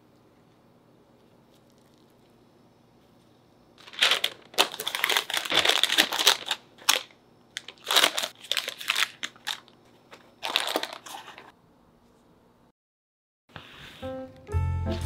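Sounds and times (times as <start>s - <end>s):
wrapping paper crinkling: 3.8s - 11.5s.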